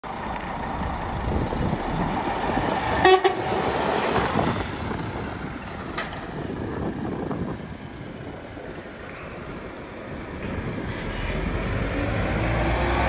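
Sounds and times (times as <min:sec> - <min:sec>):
truck diesel engine driving past: 0:00.0 - 0:13.0
truck horn double toot: 0:03.0 - 0:03.5.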